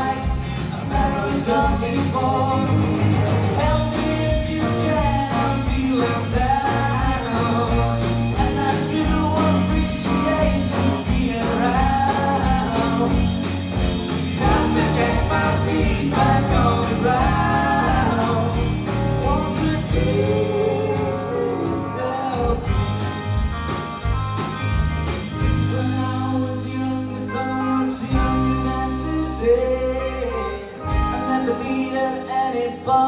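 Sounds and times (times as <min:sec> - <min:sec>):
voices singing together: 0:00.0 - 0:22.8
bass guitar: 0:00.0 - 0:33.0
drums: 0:00.0 - 0:33.0
electric guitars: 0:00.0 - 0:33.0.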